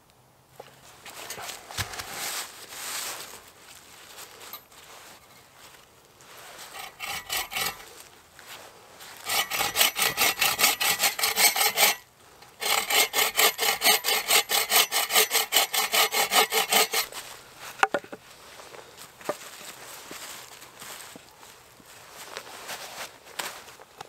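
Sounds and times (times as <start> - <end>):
saw cutting wood: 6.7 - 7.9, 9.2 - 17.2.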